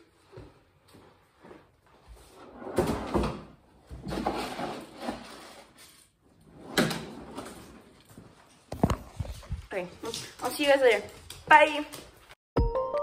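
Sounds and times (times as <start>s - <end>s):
cupboard doors opening and closing: 2.5s - 5.7s, 6.4s - 8.0s.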